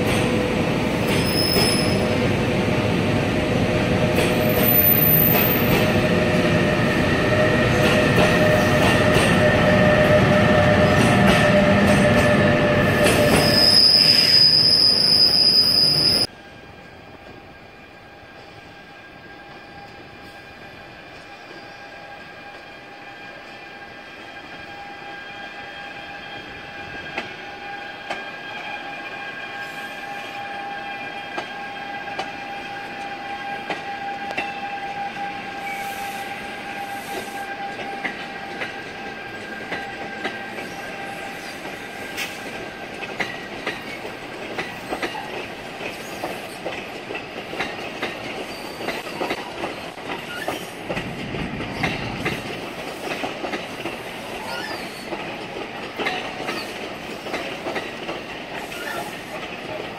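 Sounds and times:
locomotive high whine: 0.0s - 42.5s
train wheels clicking over rail joints: 37.0s - 59.9s.

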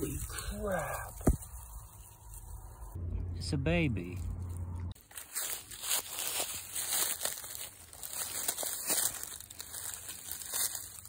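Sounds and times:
dry leaves rustling and crackling: 0.0s - 3.0s, 4.0s - 11.0s.

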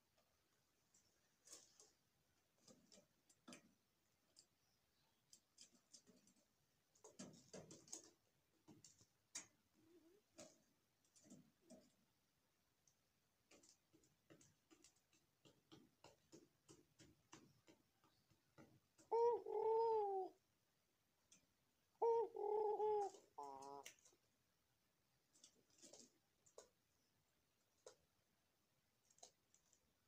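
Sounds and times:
dove cooing: 9.4s - 10.6s, 19.0s - 20.4s, 22.0s - 24.1s.

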